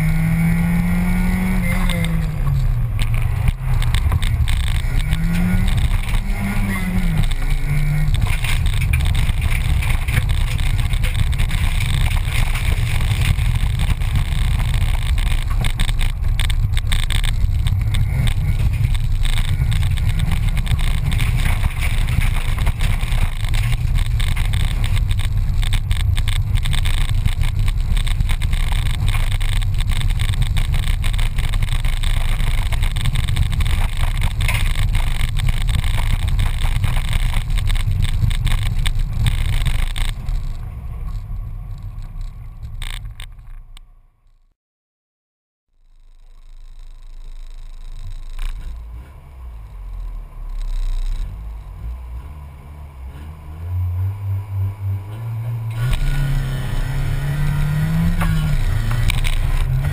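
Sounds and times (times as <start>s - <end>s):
car engine under load: 0.0s - 44.3s, 46.1s - 59.9s
tyres rattling on loose gravel: 1.4s - 43.7s, 55.1s - 59.9s.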